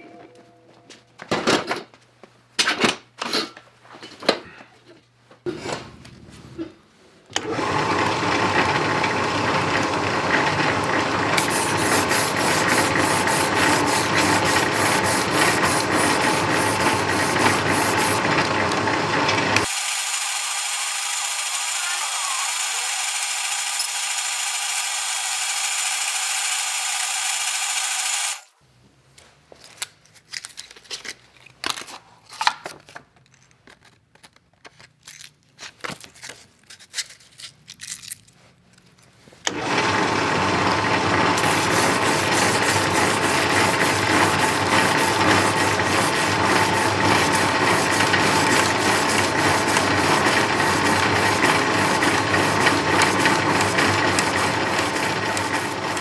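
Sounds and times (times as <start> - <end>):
motorized sanding machine stroking blade: 7.4 - 28.5, 39.5 - 56.0
clicks and knocks of handling: 29.6 - 39.1.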